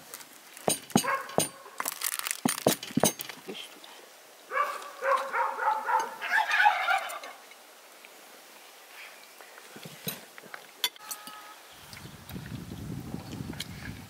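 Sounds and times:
turkey gobbling: 0:05.0 - 0:07.4.

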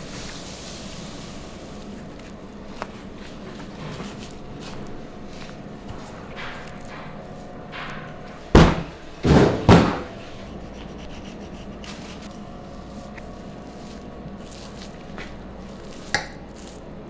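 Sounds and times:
faint steady hum: 0:00.0 - 0:17.0
loud knocks with scraping: 0:05.9 - 0:10.4.

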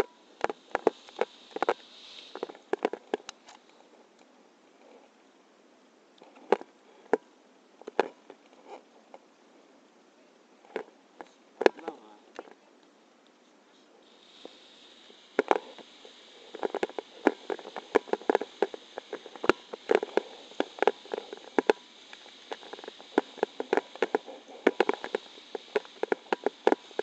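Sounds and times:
faint steady hiss: 0:00.0 - 0:27.0
sharp taps and knocks: 0:16.5 - 0:27.0.

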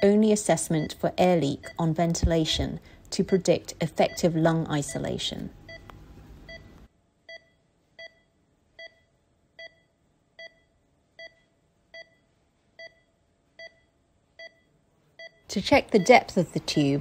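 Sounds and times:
patient monitor beeping: 0:00.0 - 0:17.0.

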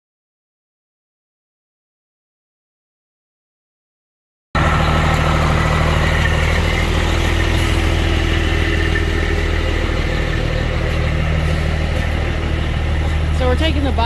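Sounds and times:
diesel engine idling: 0:04.6 - 0:14.0.

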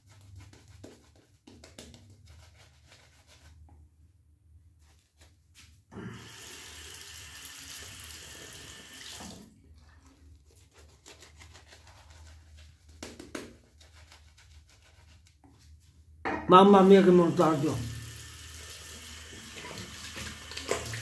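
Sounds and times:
sink tap running: 0:17.3 - 0:21.0.

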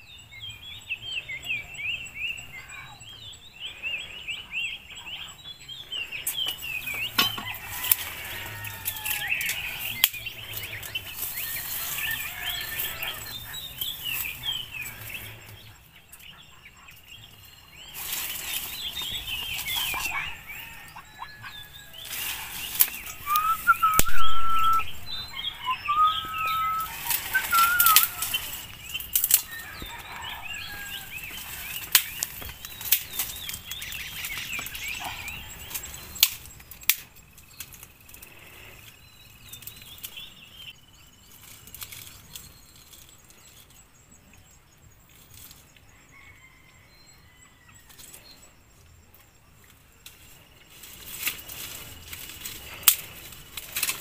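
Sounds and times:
small birds chirping and trilling: 0:00.0 - 0:54.0
dry vegetation rustling: 0:05.5 - 0:43.9, 0:49.5 - 0:54.0
whistled bird notes: 0:18.7 - 0:36.5
handling noises: 0:21.8 - 0:34.9.

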